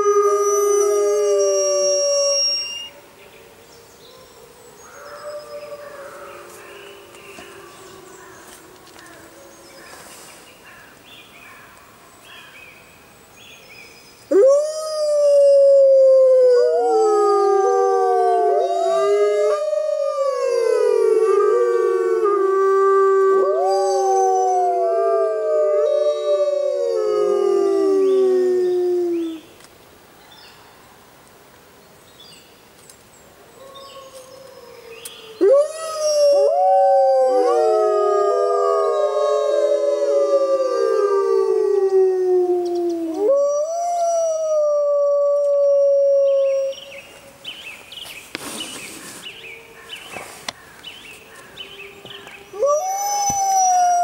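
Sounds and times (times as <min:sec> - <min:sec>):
wolves howling in chorus: 0:14.3 - 0:29.4, 0:33.6 - 0:46.8, 0:51.7 - 0:54.0.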